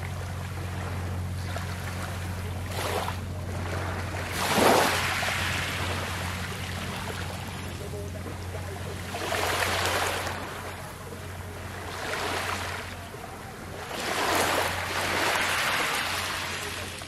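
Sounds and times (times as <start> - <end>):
steady low hum: 0.0 - 17.0
gentle waves on pebble shore: 13.8 - 17.0.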